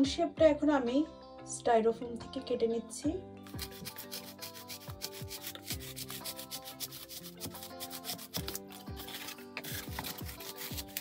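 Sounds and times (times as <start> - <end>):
knife cutting styrofoam: 3.5 - 11.0.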